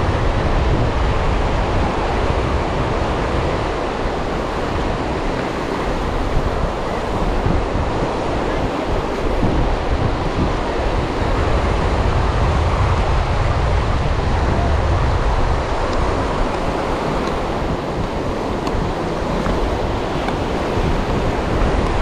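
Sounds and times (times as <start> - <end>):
surf breaking on beach: 0.0 - 22.0
wind rumbling on microphone: 0.0 - 22.0.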